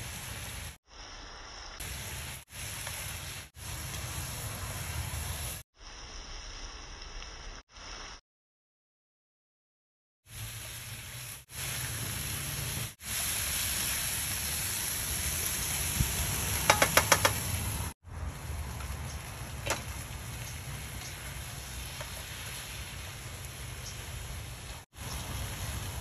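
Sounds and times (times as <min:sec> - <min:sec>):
vegetables sizzling in a frying pan: 0:00.0 - 0:08.1, 0:10.3 - 0:26.0
spatula clicking against pan: 0:16.7 - 0:17.4.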